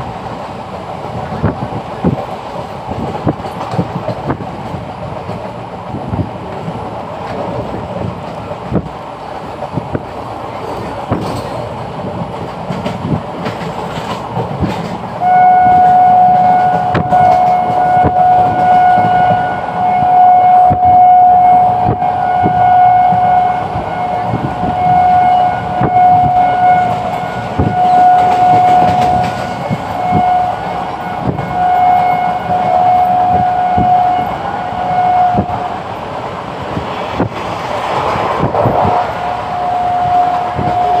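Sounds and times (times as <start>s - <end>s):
train wheels clicking over rail joints: 0.0s - 15.2s, 15.8s - 19.4s, 25.7s - 34.0s
locomotive horn blasts: 15.2s - 35.8s, 39.2s - 41.0s.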